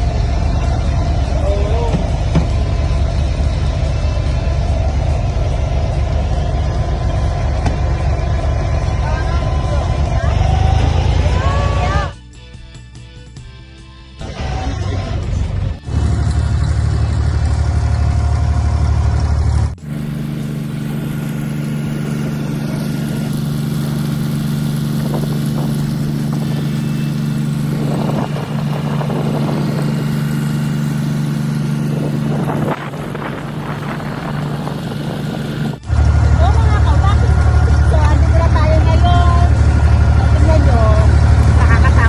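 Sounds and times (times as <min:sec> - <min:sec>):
boat engine running: 0:00.0 - 0:12.2, 0:14.2 - 0:42.0.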